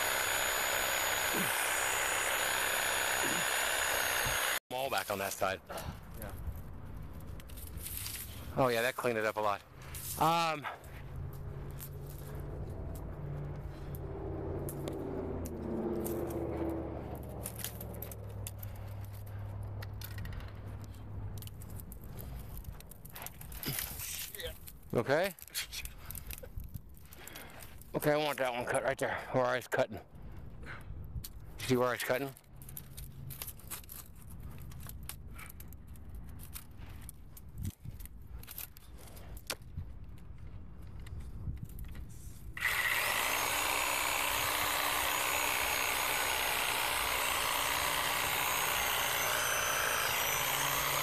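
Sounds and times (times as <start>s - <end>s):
motor humming: 0.0s - 4.6s, 42.6s - 51.0s
twigs crackling and snapping: 6.1s - 8.6s, 10.9s - 27.9s, 32.2s - 42.1s.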